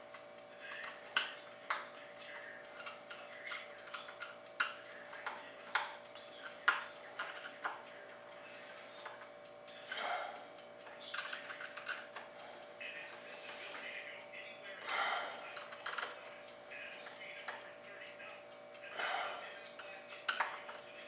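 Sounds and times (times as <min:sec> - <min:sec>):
faint steady hum: 0:00.0 - 0:21.0
hand tool clicking and scraping: 0:02.7 - 0:07.8, 0:11.0 - 0:12.3.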